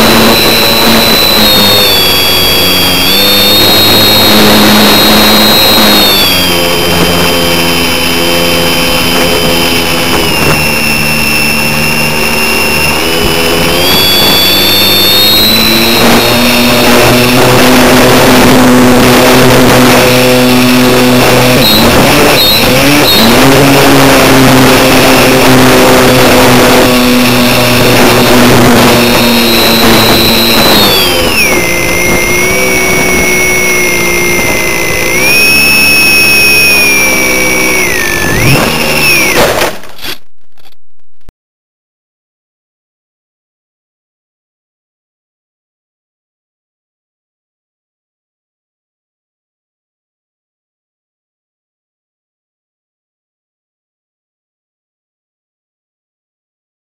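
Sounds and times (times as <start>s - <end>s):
model plane motor droning: 0.0s - 40.2s.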